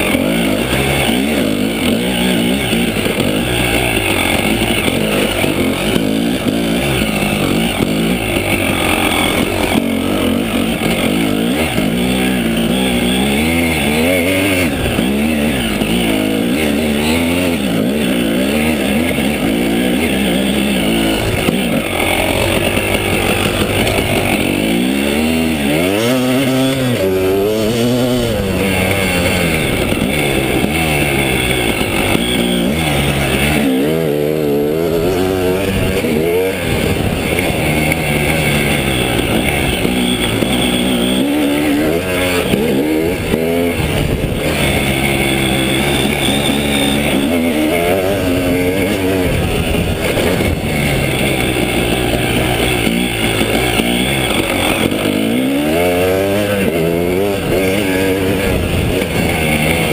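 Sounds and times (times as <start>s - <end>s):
two-stroke motorcycle engine revving: 0.0s - 59.9s.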